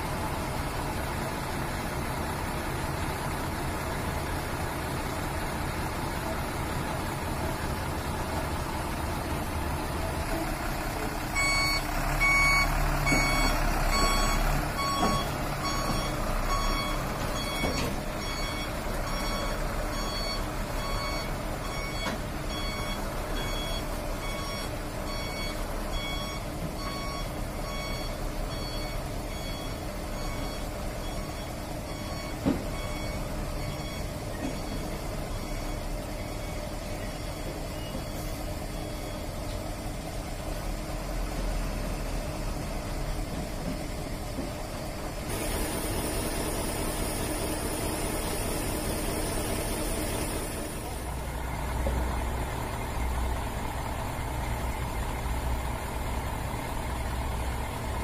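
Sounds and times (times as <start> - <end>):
diesel truck engine running: 0.0 - 58.0
reversing alarm beeping: 11.3 - 39.5, 45.3 - 51.1.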